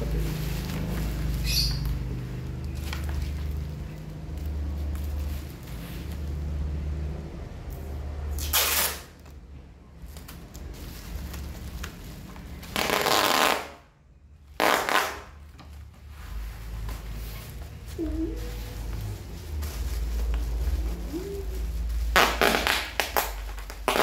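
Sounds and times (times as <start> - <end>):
plastic wrapping crinkling: 0.0 - 6.9, 8.4 - 13.8, 14.5 - 24.0
packing tape tearing off roll: 8.3 - 9.3, 12.6 - 13.8, 14.6 - 15.4, 22.1 - 24.0.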